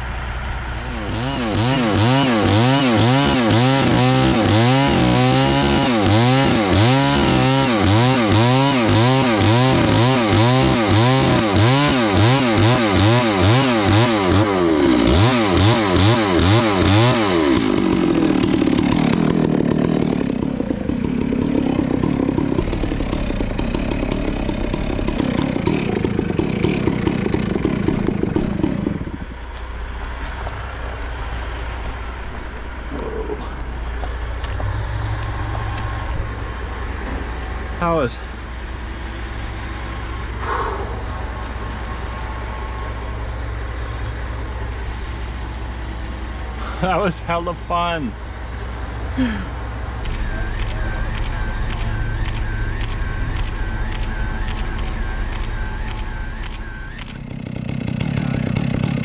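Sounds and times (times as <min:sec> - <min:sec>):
chainsaw cutting trunk: 0:00.8 - 0:29.4, 0:50.0 - 0:59.0.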